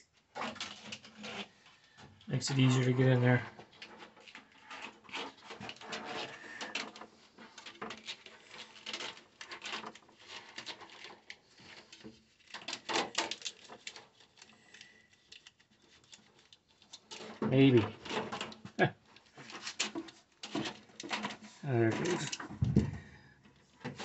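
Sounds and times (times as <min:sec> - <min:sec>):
hands handling wires clicking: 0:07.6 - 0:24.0.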